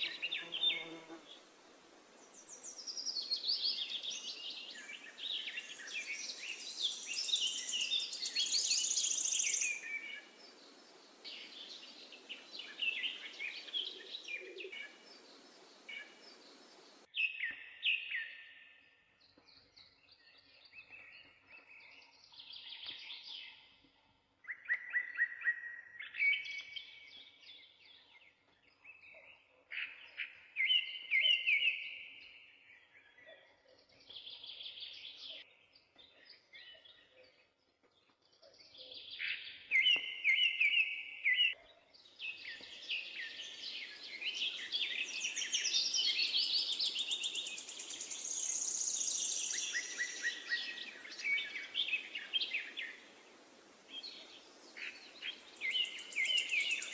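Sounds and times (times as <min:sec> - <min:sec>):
birds chirping and trilling: 0:00.0 - 0:01.5, 0:02.2 - 0:56.9
steady background hiss: 0:00.0 - 0:03.0, 0:14.7 - 0:17.1, 0:46.6 - 0:56.9.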